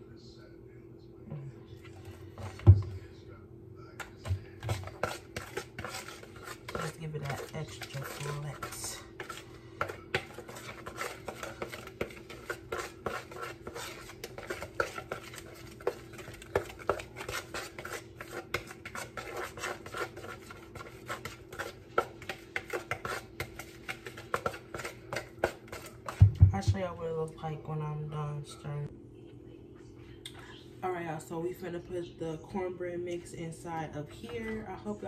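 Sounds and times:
low steady hum: 0.0 - 35.0
spoon stirring batter in bowl: 1.7 - 27.9.

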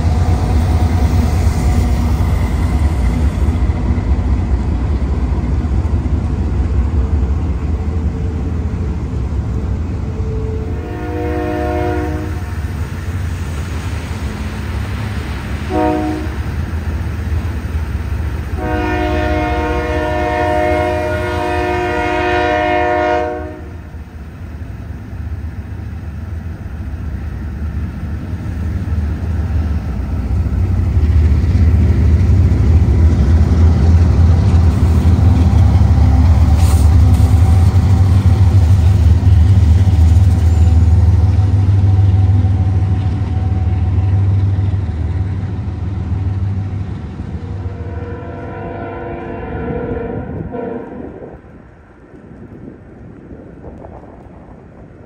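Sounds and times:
freight train rumbling past: 0.0 - 55.0
locomotive air horn: 10.1 - 12.5, 15.7 - 16.4, 18.6 - 23.9, 47.5 - 51.3.

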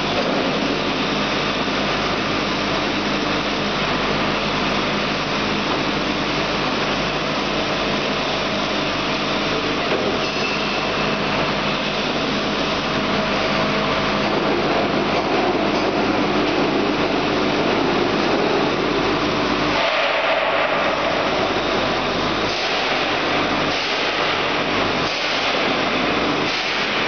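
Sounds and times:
machine humming and hissing: 0.0 - 27.0.

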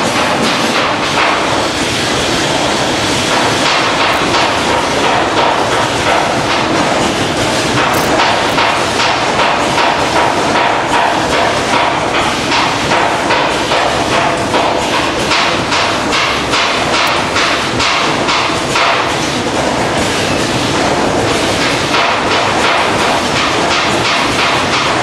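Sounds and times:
packing machines clacking: 0.0 - 25.0
machinery din: 2.2 - 12.1, 12.8 - 19.1.

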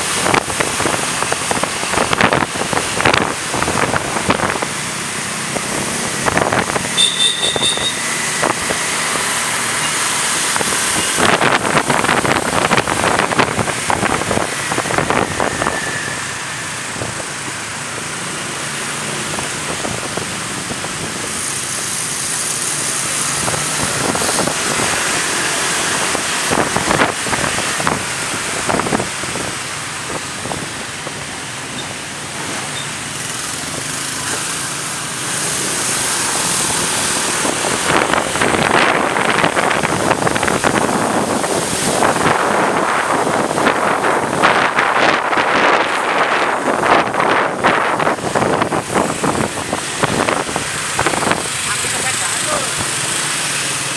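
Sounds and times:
wind buffeting microphone: 0.0 - 4.9, 10.4 - 17.6, 23.3 - 31.4, 35.7 - 51.8
motorbike and car traffic: 0.0 - 53.9.

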